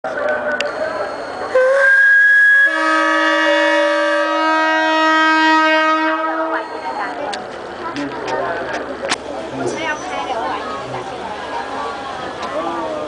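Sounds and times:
steam locomotive whistle: 1.5s - 6.8s.

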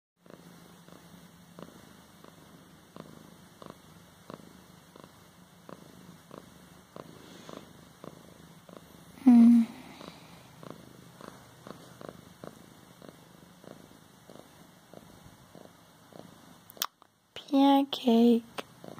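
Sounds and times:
cat purring: 0.2s - 18.9s.

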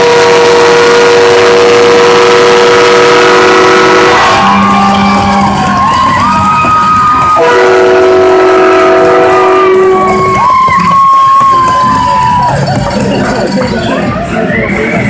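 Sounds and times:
arena goal horn: 0.0s - 5.4s, 7.4s - 10.2s.

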